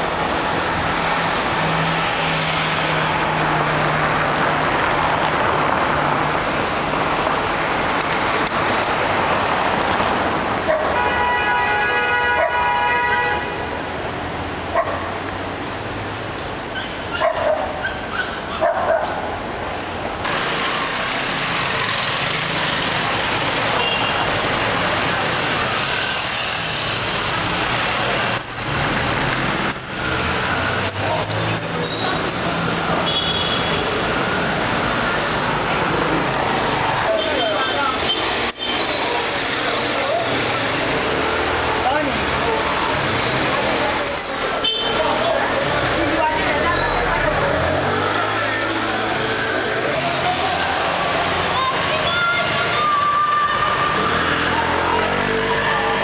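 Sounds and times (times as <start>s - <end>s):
car and scooter engines passing: 0.0s - 11.4s, 13.8s - 56.0s.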